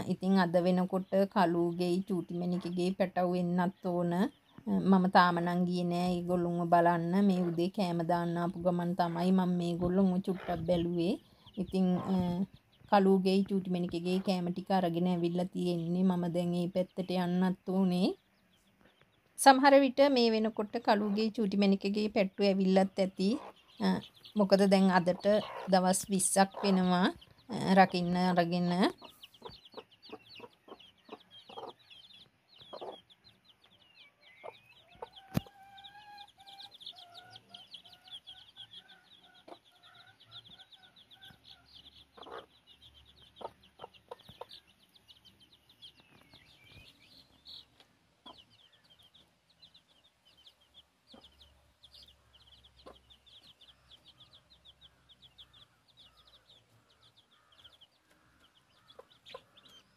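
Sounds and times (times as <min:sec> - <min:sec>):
chicks peeping: 0:00.0 - 0:59.9
hen clucking: 0:02.2 - 0:12.6, 0:20.1 - 0:45.0, 0:47.6 - 0:49.3, 0:51.1 - 0:59.9.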